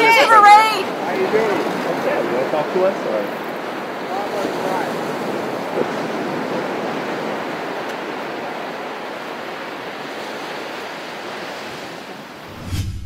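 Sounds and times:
ocean waves breaking: 0.0 - 12.8
low boom and whoosh: 12.5 - 13.0.

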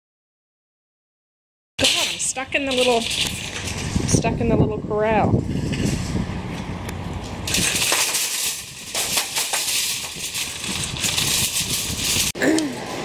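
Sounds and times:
shopping cart rattling on asphalt: 1.8 - 6.2, 7.4 - 13.0.

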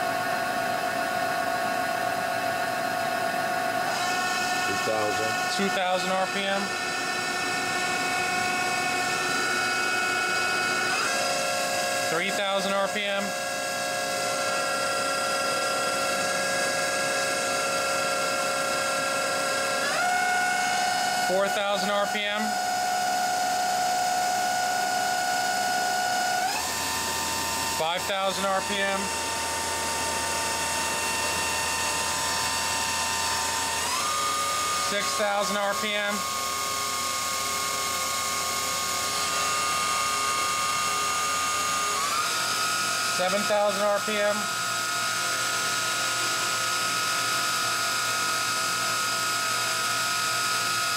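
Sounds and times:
machine spindle whine: 0.0 - 50.9.

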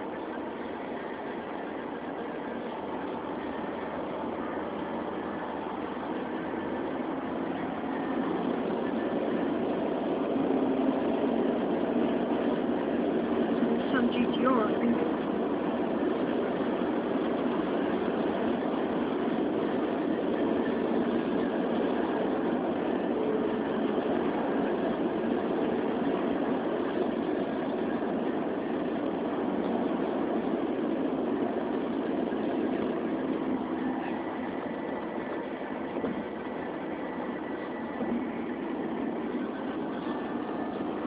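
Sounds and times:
car road and engine noise: 0.0 - 41.0.

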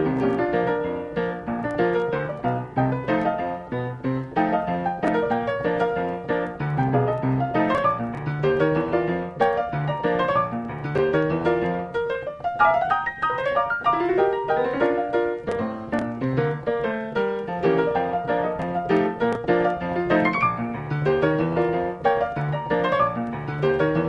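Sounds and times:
lively solo piano: 0.0 - 24.0.

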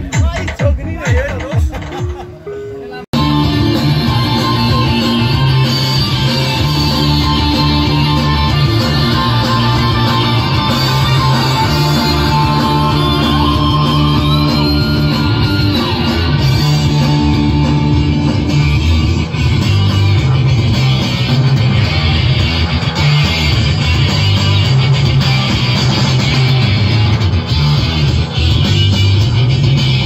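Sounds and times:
loud rock music with heavy bass: 3.1 - 30.0.

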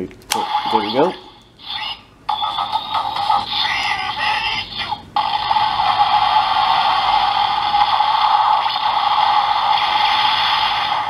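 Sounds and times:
toy speaker hissing blast: 5.3 - 11.0.

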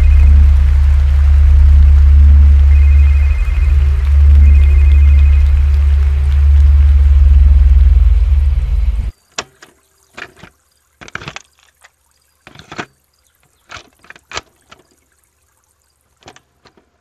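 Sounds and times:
loud bass-heavy music: 0.0 - 9.1
liquid drips: 9.8 - 16.4.

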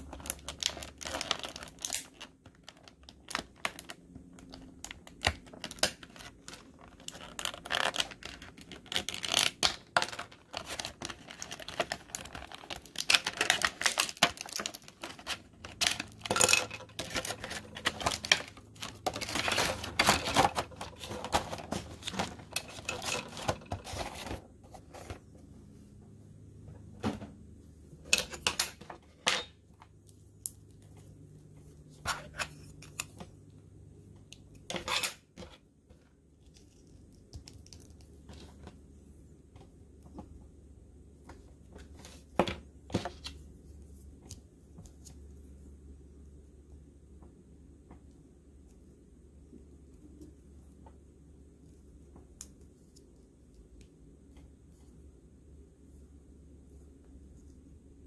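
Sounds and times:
plastic bags crinkling: 0.0 - 24.4.

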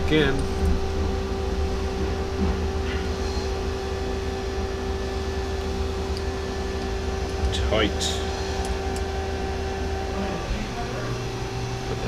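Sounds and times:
machine shop drone: 0.0 - 12.0.

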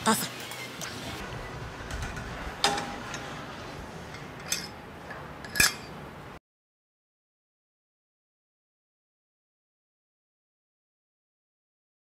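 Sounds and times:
metal weight plates clinking: 4.1 - 4.8, 5.4 - 6.0.

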